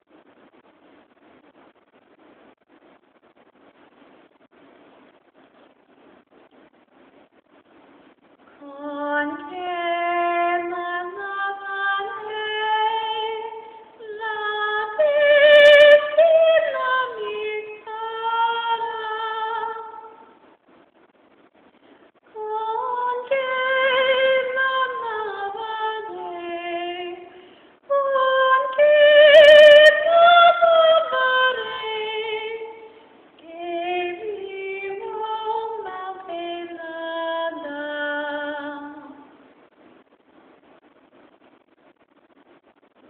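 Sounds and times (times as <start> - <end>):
recording crackle: 0.0 - 43.0
woman singing opera: 8.6 - 20.2, 22.4 - 39.3.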